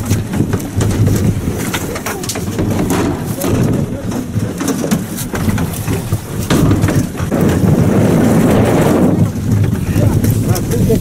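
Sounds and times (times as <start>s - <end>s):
sharp knocks: 0.0s - 8.1s
water and boat noise: 0.0s - 11.0s
wind rumbling on microphone: 0.0s - 11.0s.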